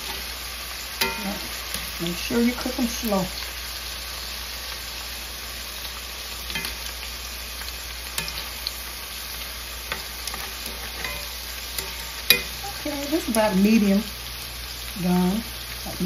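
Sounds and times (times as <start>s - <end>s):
meat sizzling in hot oil: 0.0s - 16.0s
metal tongs clicking: 9.9s - 12.5s.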